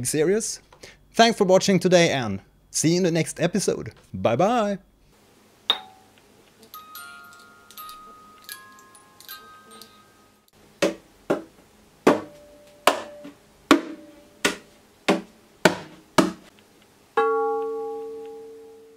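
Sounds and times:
glass bowl ringing: 5.7s - 10.5s, 17.2s - 18.9s
music box tinkling: 5.7s - 10.5s.

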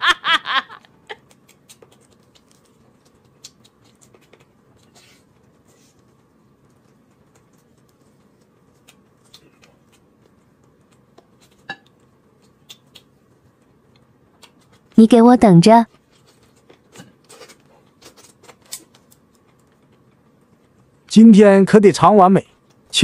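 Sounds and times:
person chewing wet smacks: 1.1s - 15.0s.

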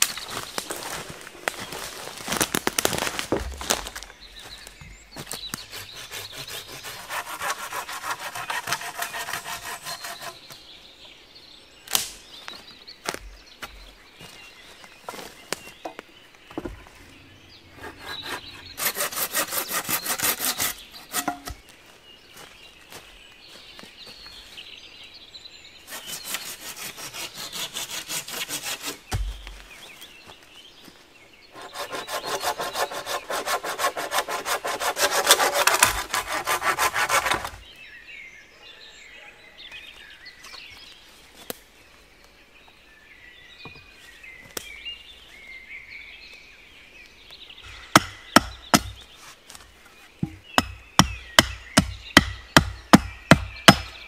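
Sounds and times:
saw cutting wood: 5.4s - 10.6s, 17.7s - 21.6s, 25.9s - 29.3s, 31.5s - 37.6s, 50.2s - 54.0s
axe chopping wooden stake: 11.9s - 12.2s, 19.8s - 21.7s, 29.1s - 29.6s, 47.9s - 49.0s, 50.2s - 54.0s.

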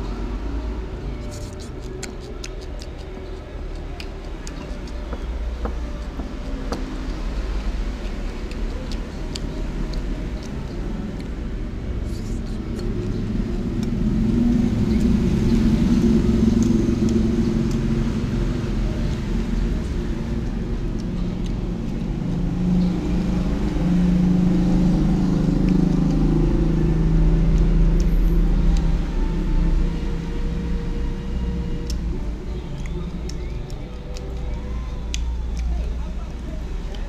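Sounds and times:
vehicle engines rumbling: 0.0s - 37.0s
drone drifting in pitch: 13.2s - 35.6s.

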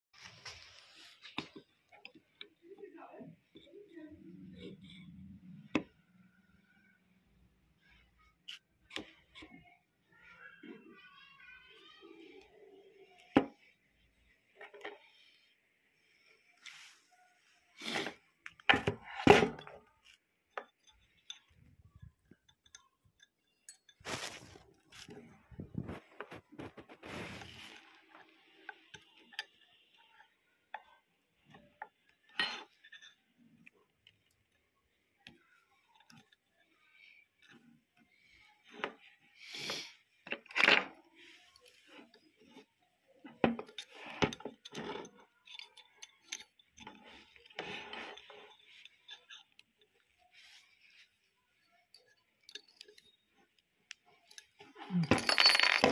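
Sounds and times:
metal clinks and scrapes: 43.5s - 51.1s, 54.3s - 55.9s
metal clinking: 54.3s - 55.9s.

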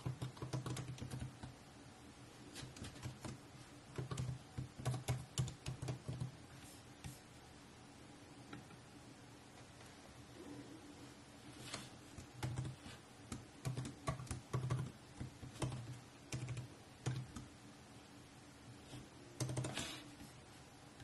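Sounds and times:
laptop keyboard typing: 0.0s - 1.6s, 2.5s - 6.4s, 12.1s - 17.5s, 19.4s - 20.0s.

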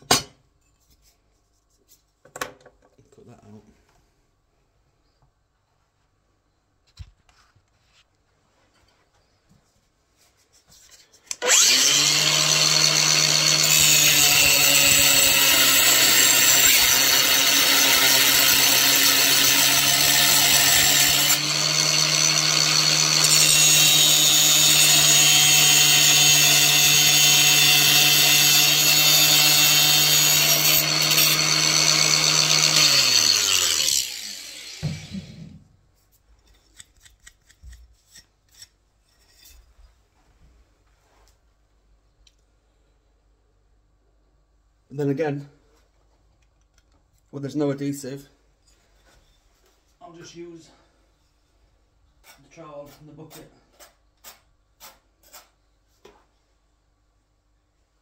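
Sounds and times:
electric power cutter cutting tile: 11.4s - 35.6s.

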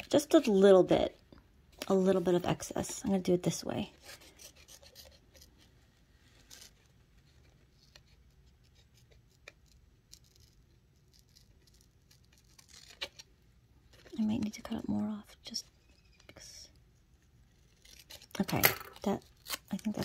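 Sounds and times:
small scissors snipping paper: 7.8s - 13.3s.

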